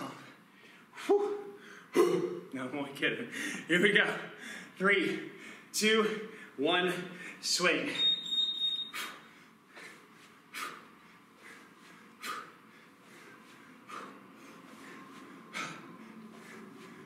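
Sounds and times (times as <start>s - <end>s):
interval timer beep: 7.9s - 9.0s.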